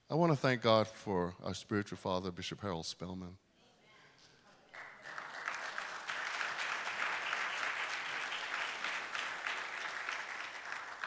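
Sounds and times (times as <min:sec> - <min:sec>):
congregation applauding: 0:04.7 - 0:11.0.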